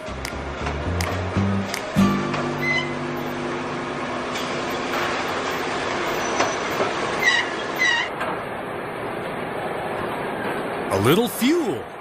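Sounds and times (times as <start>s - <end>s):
machinery din: 2.0s - 7.3s
short high squeal: 5.4s - 8.1s.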